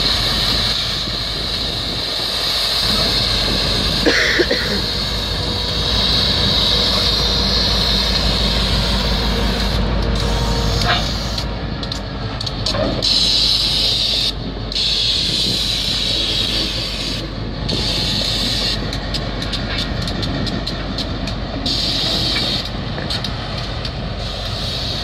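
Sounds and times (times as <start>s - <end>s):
diesel locomotive engine rumble: 0.0s - 25.0s
air hiss: 21.6s - 23.4s, 24.2s - 25.0s.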